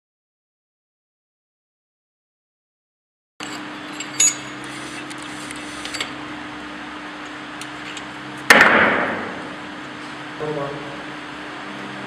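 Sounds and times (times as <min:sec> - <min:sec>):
metal parts and tools clinking: 0:03.4 - 0:04.7
workshop hum: 0:03.4 - 0:12.0.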